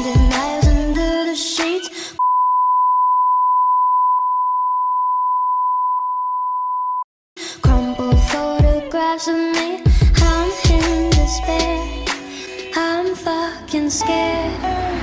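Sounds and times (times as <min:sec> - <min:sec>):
pop music with female singing: 0:00.0 - 0:02.2, 0:07.4 - 0:15.0.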